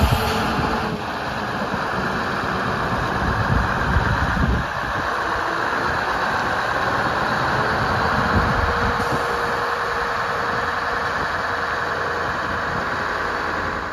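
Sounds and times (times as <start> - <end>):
diesel truck engine running: 0.0 - 13.9
truck rolling on gravel: 0.0 - 13.9.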